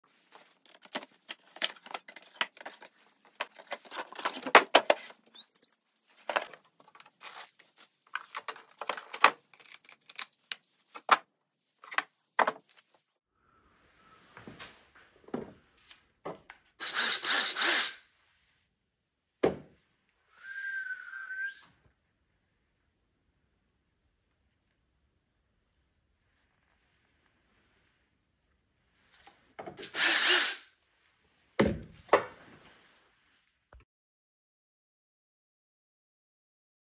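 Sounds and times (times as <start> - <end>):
cordless drill whine: 16.8 - 18.0, 29.8 - 30.6.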